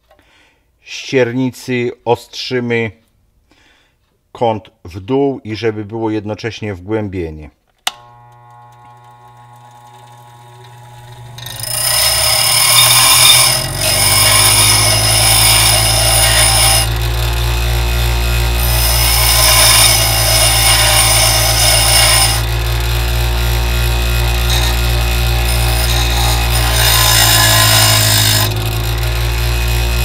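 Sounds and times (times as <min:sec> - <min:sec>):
bench grinder motor humming: 0:08.0 - 0:30.0
metal bit grinding on stone: 0:11.3 - 0:30.0.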